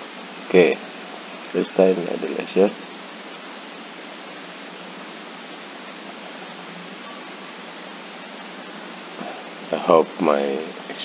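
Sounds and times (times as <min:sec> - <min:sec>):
microphone noise hiss: 0:00.0 - 0:11.0.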